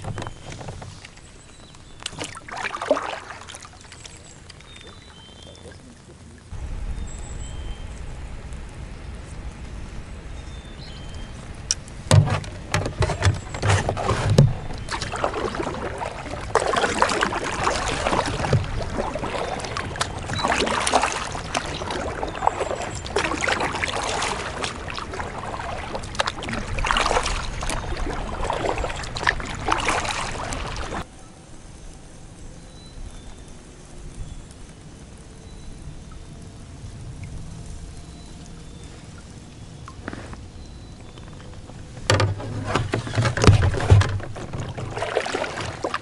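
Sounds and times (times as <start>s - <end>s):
kayak paddle splashing in water: 0.0s - 6.5s, 11.4s - 31.1s, 41.0s - 46.0s
knocks on kayak: 12.1s - 14.6s.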